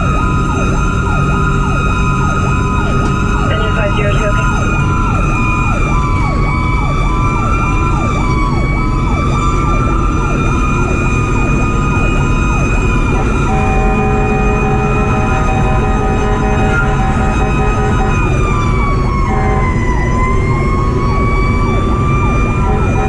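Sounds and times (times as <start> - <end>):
fire engine siren yelp: 0.0 - 23.0
steady high siren tone: 0.0 - 23.0
two-tone horn: 13.2 - 18.3, 19.3 - 19.8.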